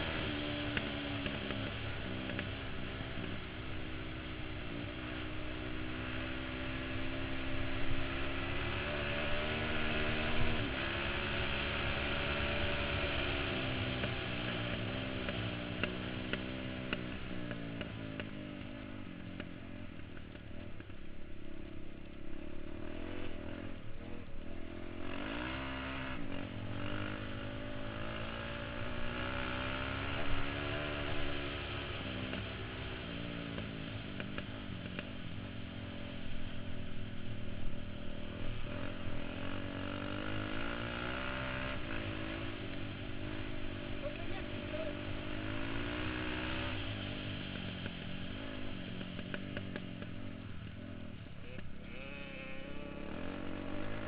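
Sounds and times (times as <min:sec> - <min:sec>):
motorcycle engine pulling hard: 0:00.0 - 0:54.0.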